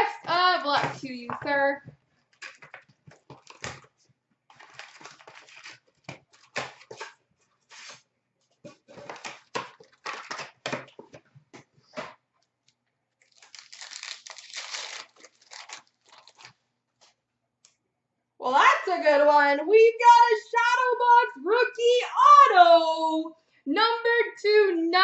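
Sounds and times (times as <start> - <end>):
wrapper tearing and crinkling: 4.6 - 6.8, 13.2 - 16.6.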